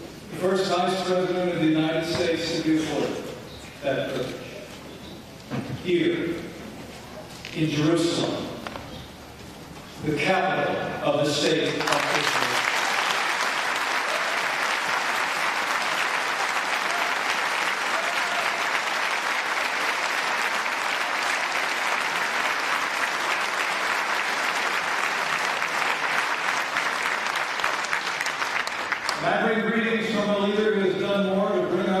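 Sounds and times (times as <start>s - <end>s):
large audience applauding: 11.6s - 29.3s.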